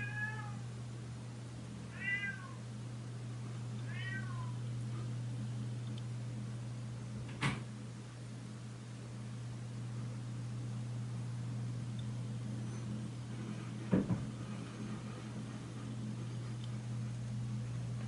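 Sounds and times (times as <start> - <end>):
cat meowing: 0.0 - 0.6, 1.9 - 2.6, 3.8 - 4.6
low hum: 2.6 - 18.0.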